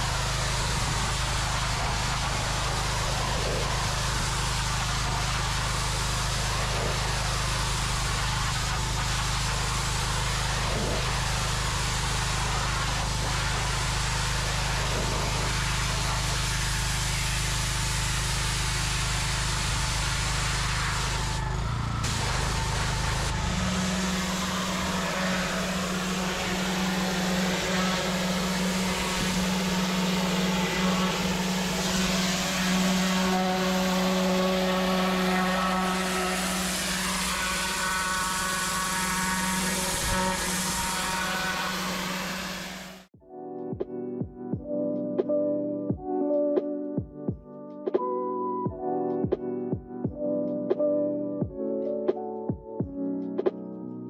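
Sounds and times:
pressure washer jet hissing: 0.0s - 43.1s
pressure washer drone: 0.0s - 43.2s.

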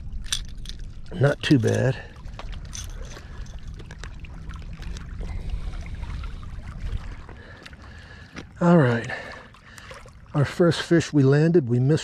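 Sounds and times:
wind rumbling on microphone: 0.0s - 7.6s
water lapping: 0.0s - 11.9s.

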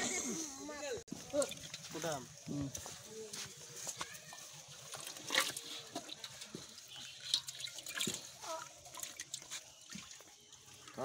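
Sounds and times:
water splashing in metal pot: 1.1s - 2.5s, 4.4s - 11.0s.

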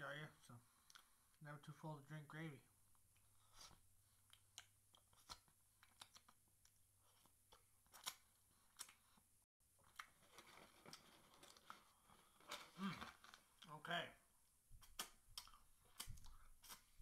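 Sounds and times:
wet mouth clicks and smacks: 14.8s - 17.0s.

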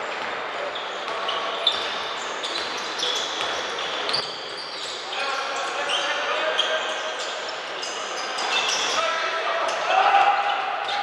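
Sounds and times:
sneakers squeaking on floor: 0.0s - 11.0s.

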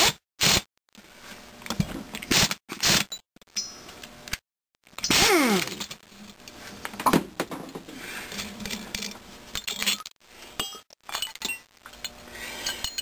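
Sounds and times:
metal tools clinking: 8.4s - 13.0s.

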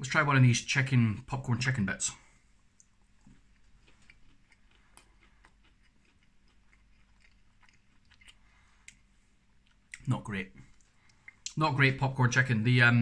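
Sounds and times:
person chewing food: 2.4s - 11.6s.

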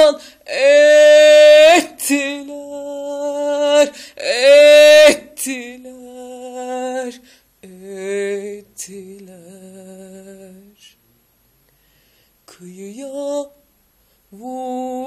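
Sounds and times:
woman singing long notes: 0.0s - 10.7s, 14.4s - 15.0s.

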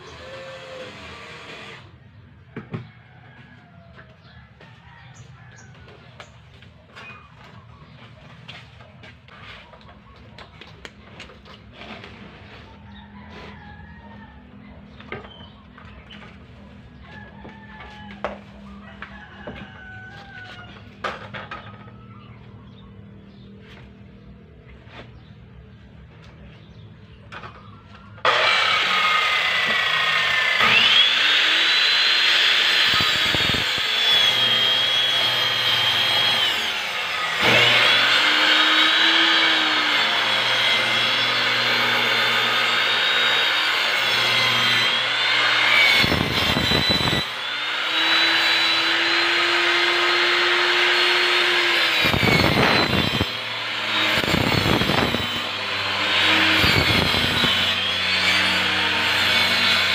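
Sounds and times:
circular saw cutting plywood: 0.0s - 2.0s, 28.2s - 59.9s.

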